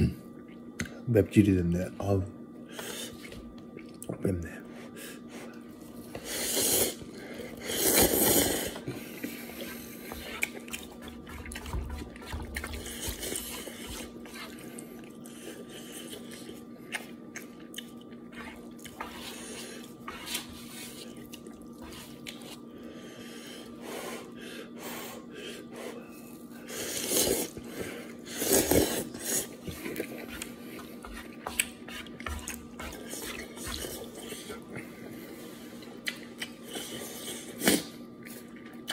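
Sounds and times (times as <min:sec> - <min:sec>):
man slurping noodles: 0:06.2 - 0:07.0, 0:07.6 - 0:08.8.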